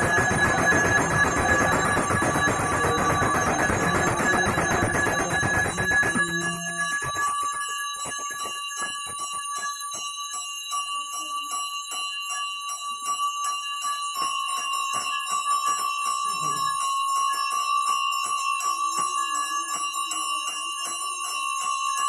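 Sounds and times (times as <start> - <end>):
hand bell ringing rapidly: 0.0 - 10.5.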